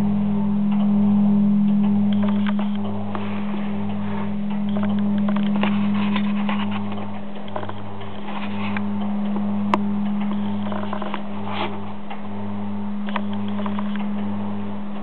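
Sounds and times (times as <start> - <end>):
deeper pulsing hum: 0.0 - 15.0
low bell hum: 0.0 - 15.0
light clicks and rattles: 1.7 - 12.3.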